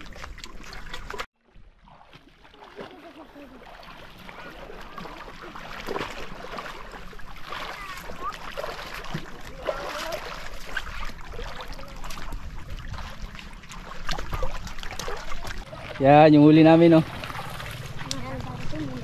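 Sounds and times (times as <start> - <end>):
sea water splashing: 0.0 - 19.0.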